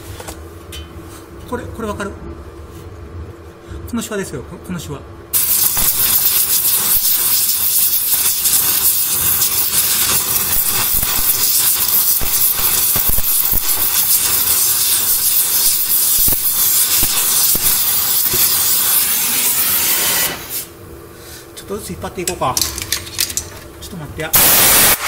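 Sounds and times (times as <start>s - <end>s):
gas torch hissing: 5.3s - 20.8s, 24.3s - 25.0s.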